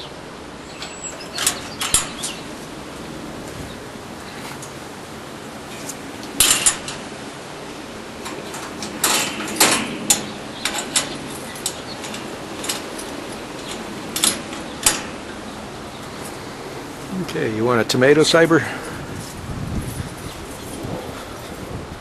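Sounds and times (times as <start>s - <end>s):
metallic clanks and clicks: 0.6s - 3.0s, 5.7s - 16.4s.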